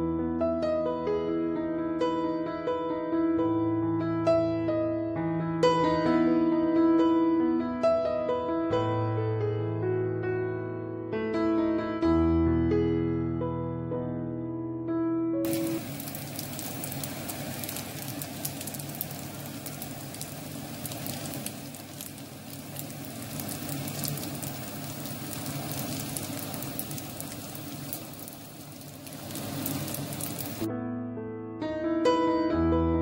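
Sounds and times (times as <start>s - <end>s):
frittata sizzling in a pan: 15.5s - 30.7s.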